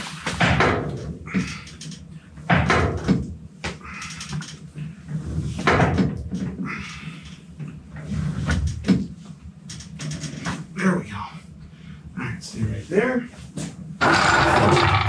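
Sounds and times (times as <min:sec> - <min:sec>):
scraping and creaking: 0:14.0 - 0:15.0.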